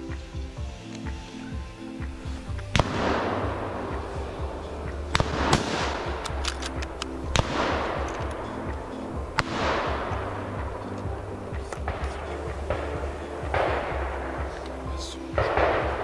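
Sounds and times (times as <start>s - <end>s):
background music: 0.0s - 16.0s
rifle shots with rolling echo: 2.7s - 10.8s, 11.6s - 14.6s, 15.4s - 16.0s.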